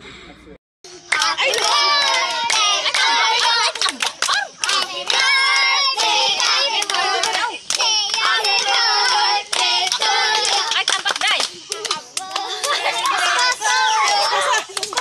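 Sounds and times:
children singing: 0:00.9 - 0:10.8, 0:11.7 - 0:15.0
children clapping hands: 0:01.0 - 0:15.0.

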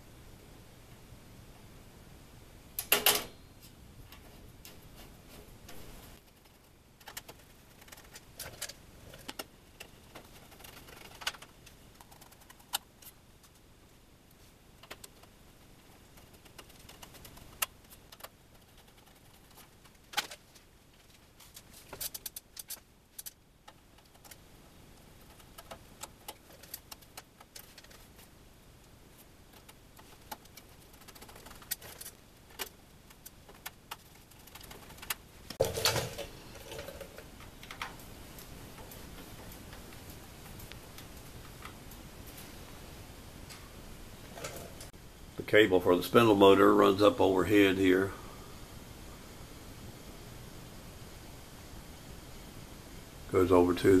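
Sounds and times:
screwdriver clicks on sheet metal: 0:02.8 - 0:03.3
metal clatter: 0:35.6 - 0:37.2.

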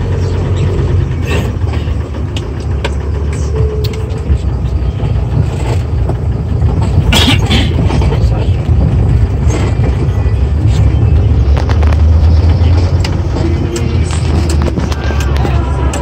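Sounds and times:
engine and road rumble: 0:00.0 - 0:16.0
knocks and rattles: 0:00.0 - 0:16.0.

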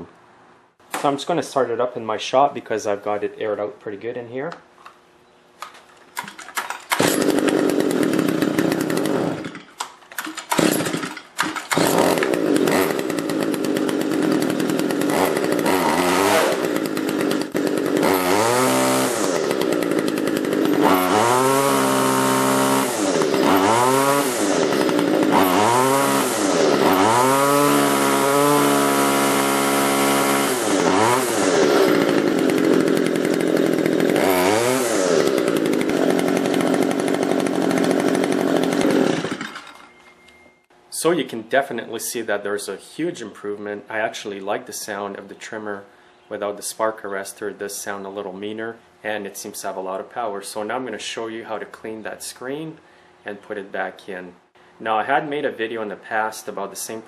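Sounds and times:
string trimmer engine revving: 0:06.2 - 0:39.8.

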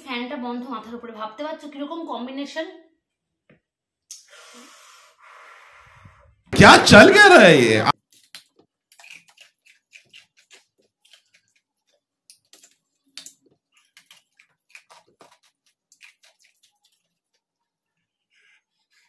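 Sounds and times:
ice being chewed: 0:08.9 - 0:17.4.

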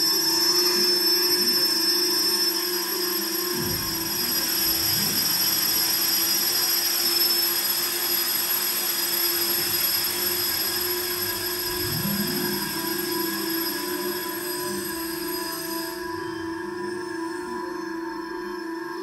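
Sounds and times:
hiss: 0:03.6 - 0:16.1
ambient synthesizer drone: 0:10.1 - 0:19.0.

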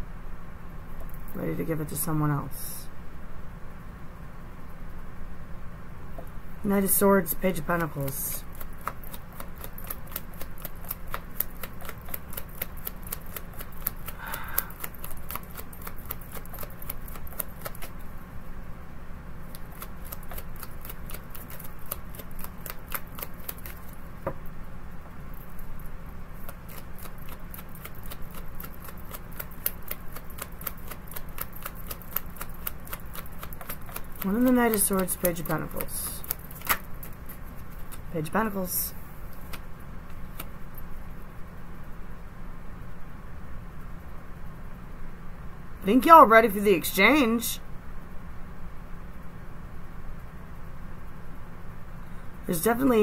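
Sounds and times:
cards being shuffled: 0:26.4 - 0:38.1.

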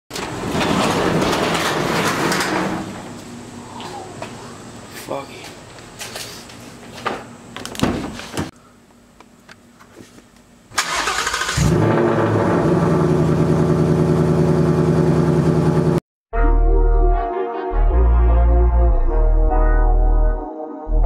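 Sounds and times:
car engine cranking: 0:10.8 - 0:12.7.

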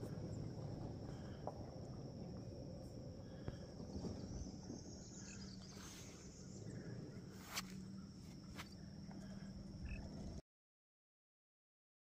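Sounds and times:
high insect drone: 0:00.0 - 0:10.4
low rumble: 0:00.0 - 0:10.4.

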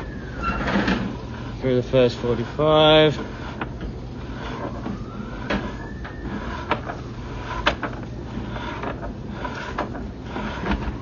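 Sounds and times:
faint rising whine: 0:00.0 - 0:11.0
low hum: 0:00.0 - 0:11.0
sharp clicks and knocks: 0:07.6 - 0:08.0.

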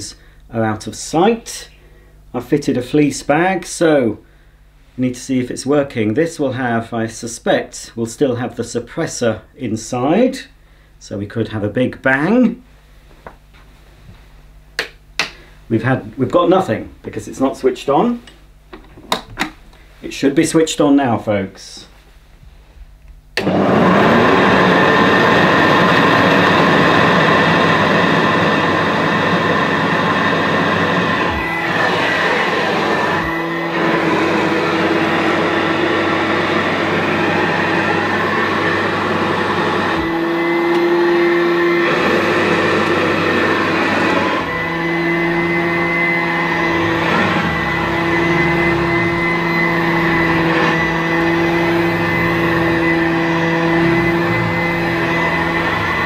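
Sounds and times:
upright vacuum motor whine: 0:23.4 - 0:56.0.

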